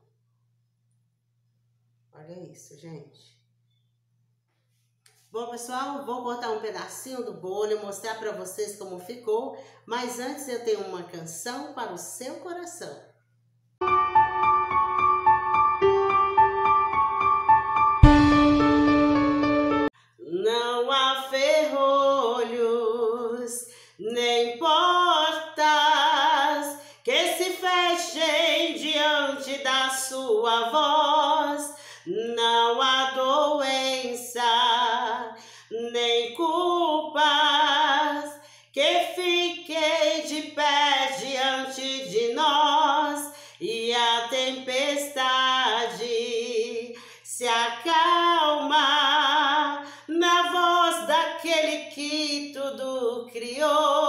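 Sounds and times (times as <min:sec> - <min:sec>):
woman singing unaccompanied: 0:20.2 - 0:54.0.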